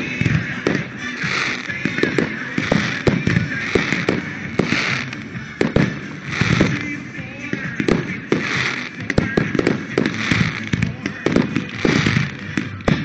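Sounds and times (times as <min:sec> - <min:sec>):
firework shells bursting: 0:00.0 - 0:07.0
disco music: 0:00.0 - 0:13.0.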